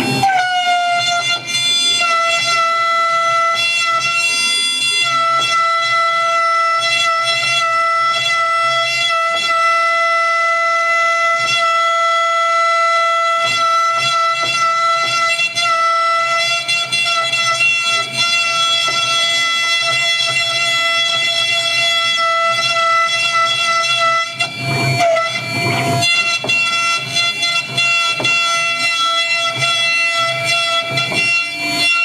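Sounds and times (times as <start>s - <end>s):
engraving spindle whining: 13.3s - 32.0s.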